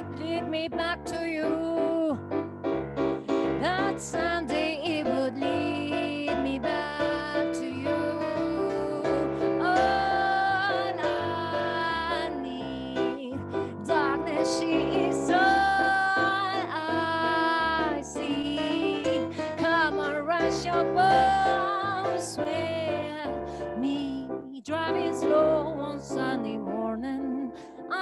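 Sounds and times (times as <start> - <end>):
woman singing jazzy melody: 0.0 - 2.5, 3.3 - 28.0
electric piano chords: 0.0 - 28.0.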